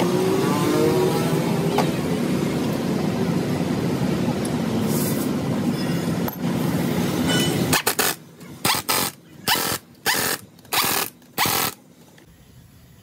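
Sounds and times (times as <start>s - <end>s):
impact wrench bursts: 7.6s - 11.8s.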